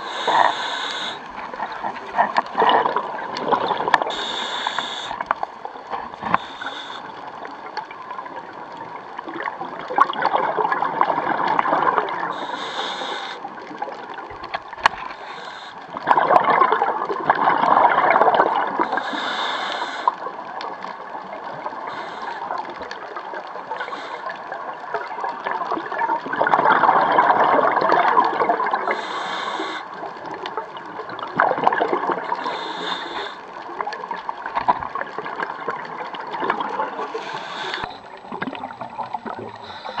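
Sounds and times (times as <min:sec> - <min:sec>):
regulator inhalation hiss: 0:00.0 - 0:01.5, 0:04.1 - 0:05.4, 0:06.3 - 0:07.4, 0:12.3 - 0:13.5, 0:15.1 - 0:15.9, 0:18.9 - 0:20.3, 0:21.8 - 0:22.7, 0:23.7 - 0:24.6, 0:28.8 - 0:30.0, 0:32.3 - 0:33.5, 0:36.9 - 0:38.0, 0:39.4 - 0:40.0
exhaled bubbles rushing: 0:01.3 - 0:04.2, 0:09.3 - 0:12.4, 0:16.0 - 0:18.9, 0:25.3 - 0:28.9, 0:30.8 - 0:32.4, 0:34.3 - 0:40.0.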